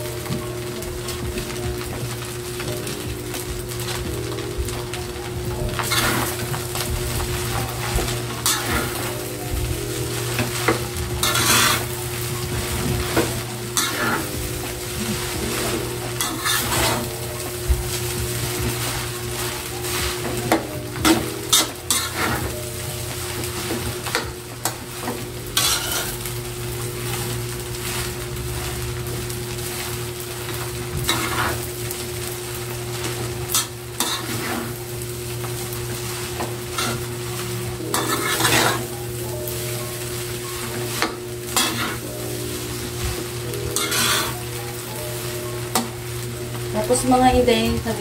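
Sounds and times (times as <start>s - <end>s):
frying sizzle: 0.0s - 48.0s
metal spatula scraping wok: 5.7s - 6.5s, 7.3s - 9.3s, 10.1s - 17.3s, 18.7s - 22.6s, 25.6s - 26.3s, 31.0s - 31.7s, 33.4s - 34.9s, 35.8s - 45.0s.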